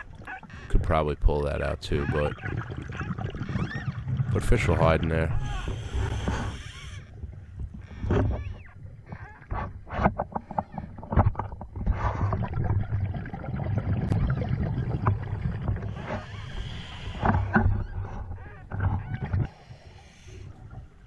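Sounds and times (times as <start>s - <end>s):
exhaled bubbles gurgling: 0.0s - 6.3s, 10.4s - 19.5s
low underwater rumble: 1.6s - 19.5s.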